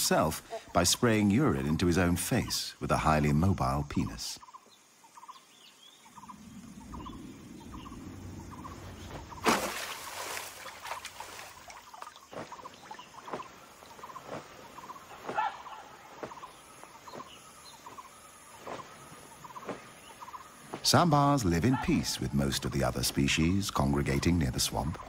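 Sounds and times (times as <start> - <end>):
water splashes: 9.0 - 17.5.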